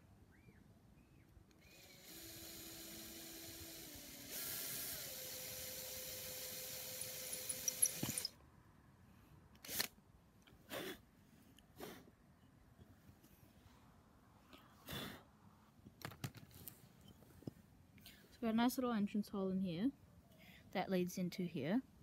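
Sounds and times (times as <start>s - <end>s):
rotary tool drilling concrete: 1.6s - 8.3s.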